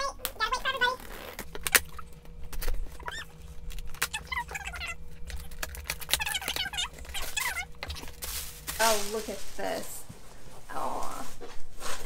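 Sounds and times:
scissors cutting packing tape: 3.7 - 8.2.

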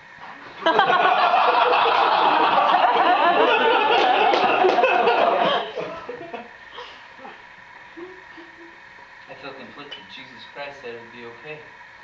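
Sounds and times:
audience laughing: 0.6 - 6.5.

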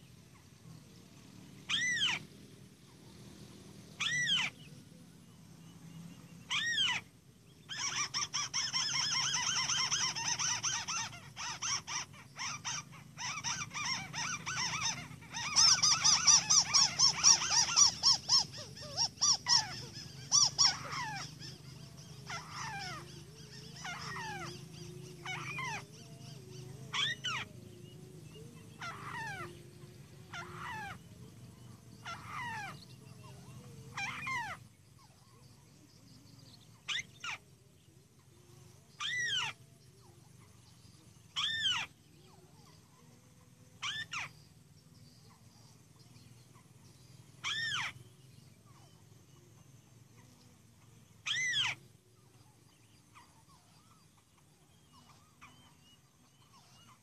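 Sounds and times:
bird rapid chattering call: 1.7 - 2.4, 4.0 - 4.7, 6.5 - 7.1, 7.7 - 27.5, 41.3 - 42.0, 43.8 - 44.6, 47.3 - 49.1, 51.2 - 51.8
bird nasal falling calls: 7.7 - 26.1.

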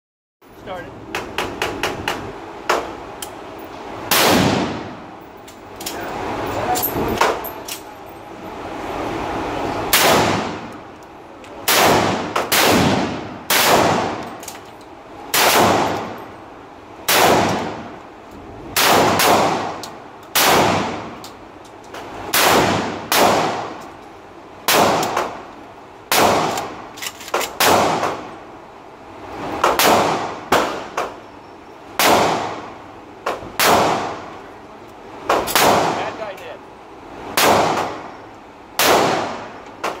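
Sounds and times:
shotgun shots echoing indoors: 4.1 - 5.0, 11.6 - 14.3, 15.3 - 16.2.

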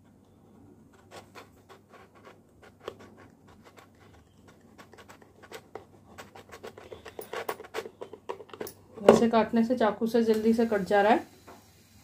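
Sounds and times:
knife sawing through plastic: 1.0 - 8.0.

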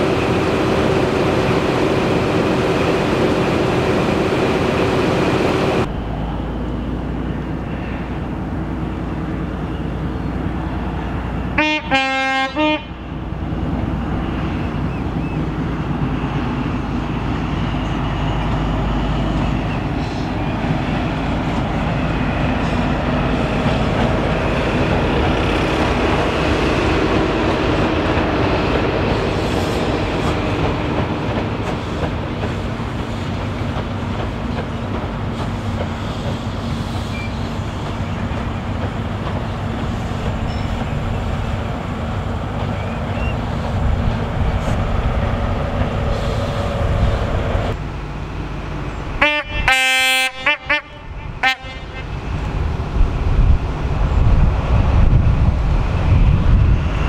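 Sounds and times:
diesel train passing: 0.0 - 57.0
two-tone train horn: 11.6 - 13.0, 49.2 - 52.2.

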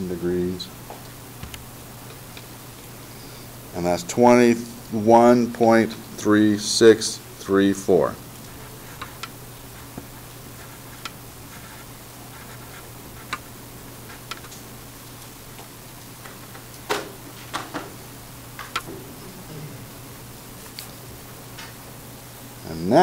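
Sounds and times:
pencil scratching on paper: 8.5 - 13.5.

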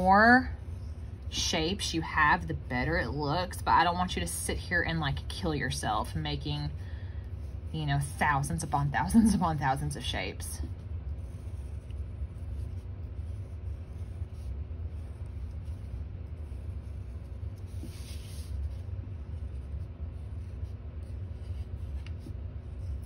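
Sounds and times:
low background rumble: 0.0 - 23.0
marker scratching on paper: 7.3 - 23.0.

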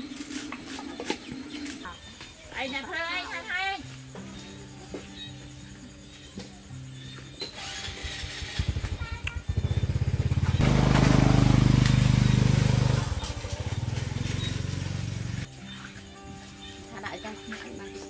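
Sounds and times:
small engine running: 7.4 - 15.5.

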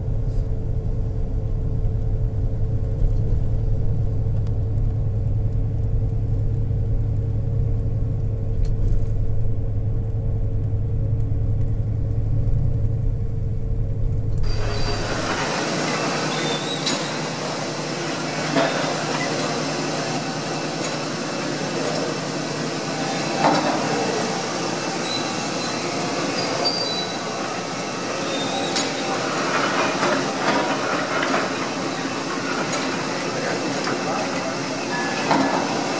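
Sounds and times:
train rumbling: 0.0 - 35.9
faint high squeals: 14.5 - 17.3, 23.1 - 29.3.

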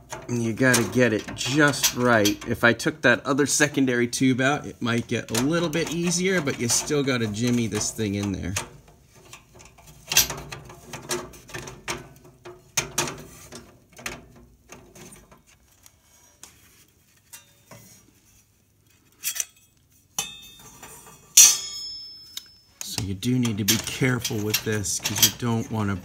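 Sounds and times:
metal clinking and scraping: 0.0 - 2.8, 3.5 - 26.0
sharp metal clacks: 21.4 - 25.5.

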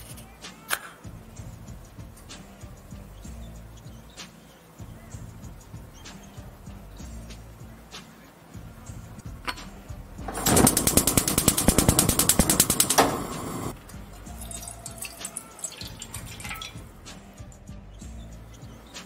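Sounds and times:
gas stove igniter clicking: 10.3 - 13.8
water poured into frying pan: 14.2 - 16.9.

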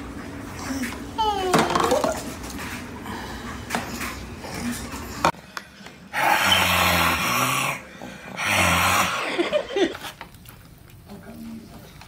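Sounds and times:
man snoring loudly: 6.1 - 9.3.

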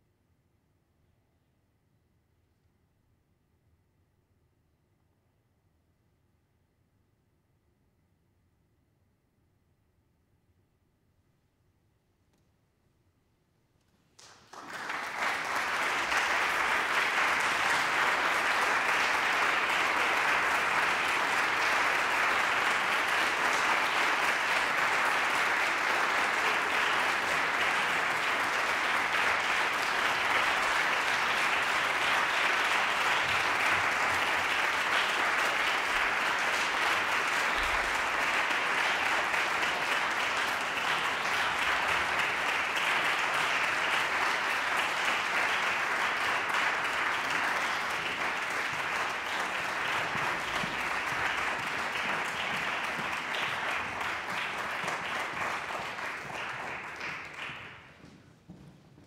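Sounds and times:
audience applauding: 14.2 - 58.6.

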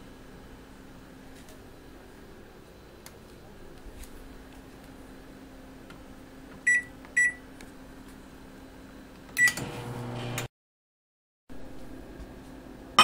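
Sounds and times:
microwave oven humming: 0.0 - 10.5
microwave keypad beeps: 6.7 - 7.4, 9.4 - 9.7.

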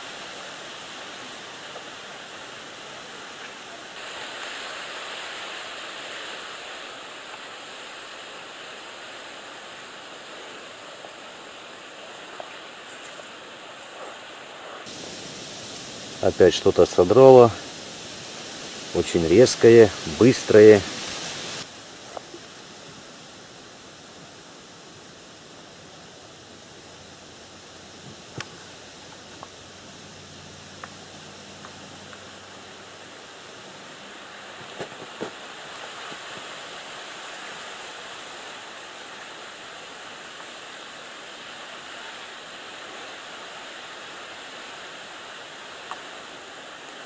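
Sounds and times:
outdoor background hiss: 0.0 - 47.0
faint ticks: 30.8 - 31.0.

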